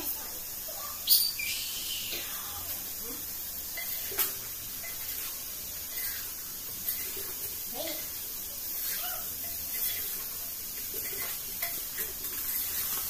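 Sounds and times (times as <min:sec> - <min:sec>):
chicken hissing in a pot: 0:00.0 - 0:13.0
metal spoon clinking on pot: 0:03.7 - 0:05.3, 0:09.4 - 0:10.2, 0:10.8 - 0:13.0.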